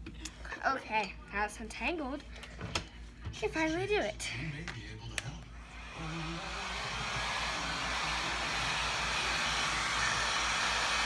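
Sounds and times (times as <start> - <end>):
heat gun blowing air: 5.8 - 11.0.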